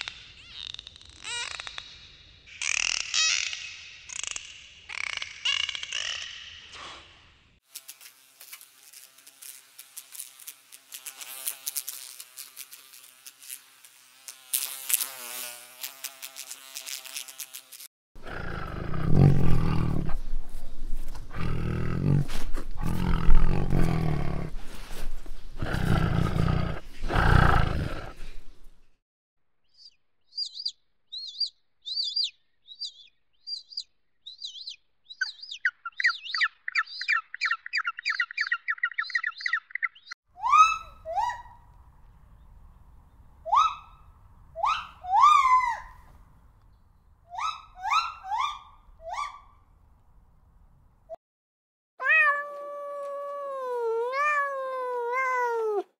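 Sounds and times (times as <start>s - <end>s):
squeaky calls sliding down: 0.0s - 6.4s
tiger growling: 18.2s - 20.4s, 21.2s - 24.7s, 25.6s - 28.4s
high quick chirps and trill: 29.8s - 40.2s.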